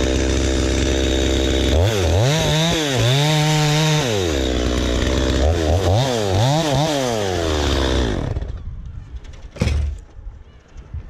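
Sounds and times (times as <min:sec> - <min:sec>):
chainsaw engine revving and idling: 0:00.0 - 0:08.5.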